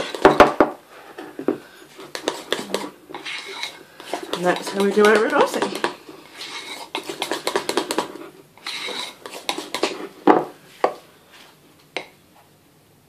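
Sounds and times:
spatula scraping a bowl: 0:00.0 - 0:00.4, 0:01.8 - 0:10.2
utensil knocking on bowl: 0:04.1 - 0:06.0.

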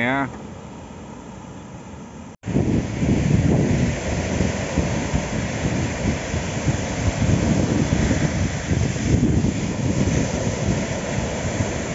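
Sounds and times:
surf washing up beach: 0:02.4 - 0:11.9
wind buffeting microphone: 0:02.4 - 0:11.9.

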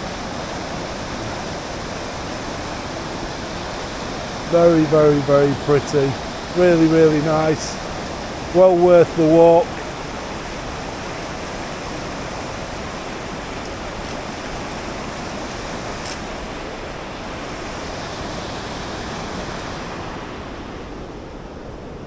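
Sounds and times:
river rapids rushing: 0:00.0 - 0:22.0.

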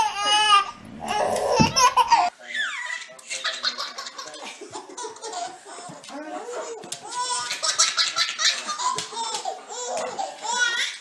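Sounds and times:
baby squealing laughter: 0:00.0 - 0:04.1
baby belly laughing: 0:00.0 - 0:06.0.

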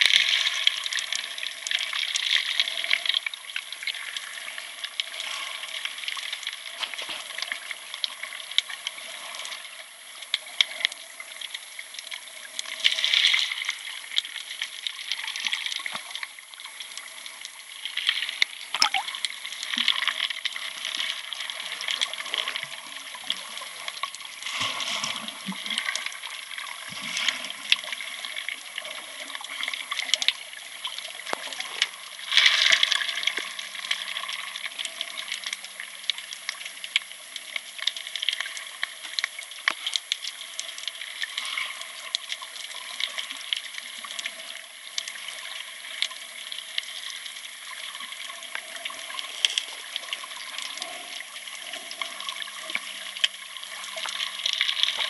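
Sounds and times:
underwater watery hiss with clicks: 0:00.0 - 0:55.0
rush of water: 0:12.0 - 0:37.1.

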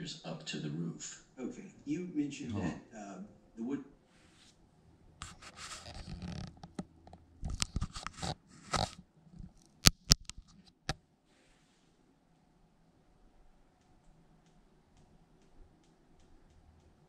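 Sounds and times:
rustling: 0:05.2 - 0:12.0.

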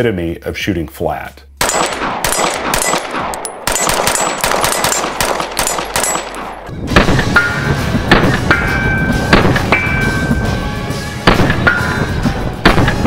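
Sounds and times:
pistol shots: 0:01.6 - 0:08.6, 0:09.3 - 0:10.0, 0:11.3 - 0:12.0, 0:12.6 - 0:13.0
music: 0:06.7 - 0:13.0.

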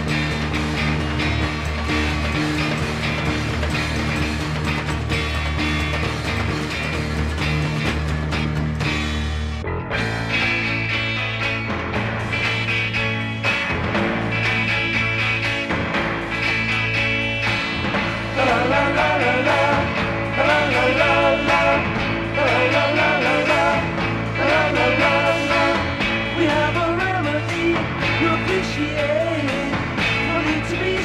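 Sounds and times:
rock band music: 0:00.0 - 0:31.0
person singing: 0:18.4 - 0:31.0.

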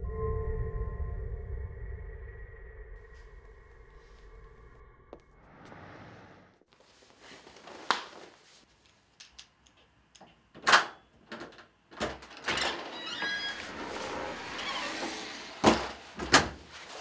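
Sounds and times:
door opening: 0:10.6 - 0:16.7.

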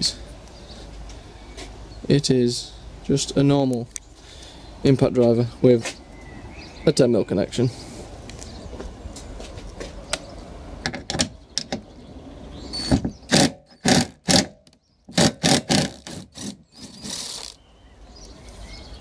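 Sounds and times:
impact driver hammering bursts: 0:13.3 - 0:17.6.

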